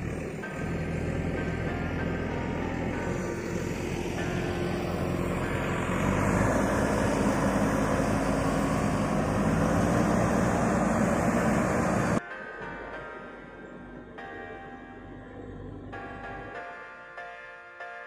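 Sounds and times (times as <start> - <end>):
engine running: 0.0 - 12.2, 14.7 - 16.6.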